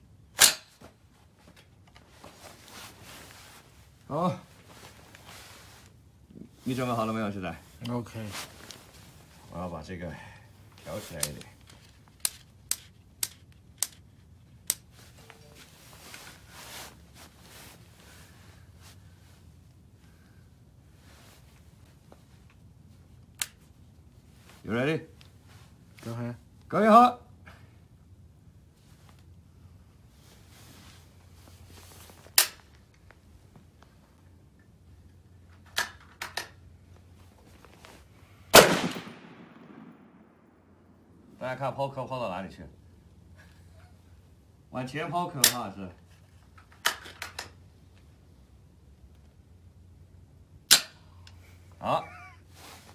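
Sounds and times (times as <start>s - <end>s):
faint rustling: 0.8s - 26.5s, 28.6s - 41.3s, 51.3s - 52.9s
rifle shot with long echo: 38.5s - 41.0s
gunshots: 38.6s - 40.2s.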